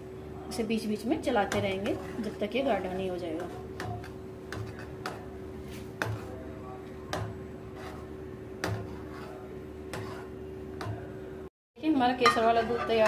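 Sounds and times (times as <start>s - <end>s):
steady hum: 0.0s - 13.0s
spoon stirring in pan: 1.2s - 11.0s.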